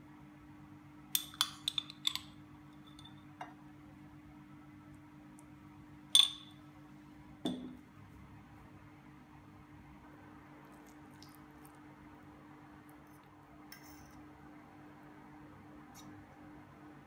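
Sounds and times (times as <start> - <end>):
faint steady hum: 0.0 - 17.0
metal spoon clinking on glass: 1.2 - 3.2, 6.2 - 6.6.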